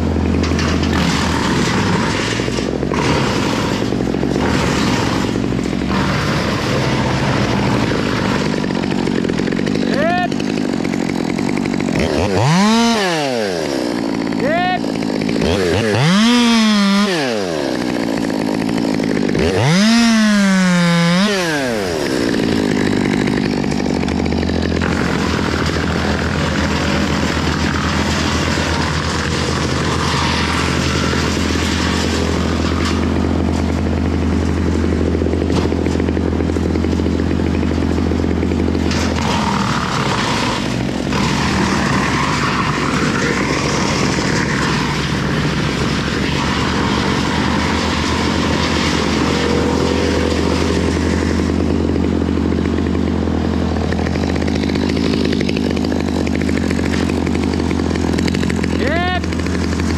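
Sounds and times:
engine running steadily: 0.0 - 59.9.

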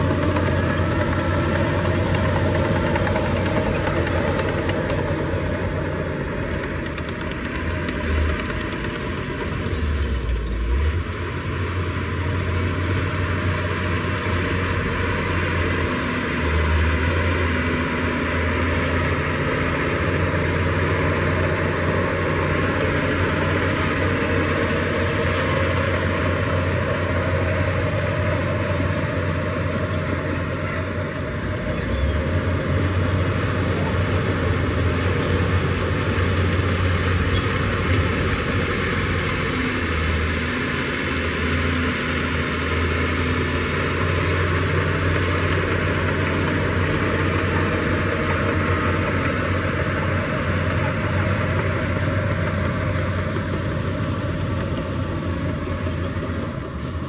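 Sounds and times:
heavy machinery diesel engine: 0.0 - 57.0.

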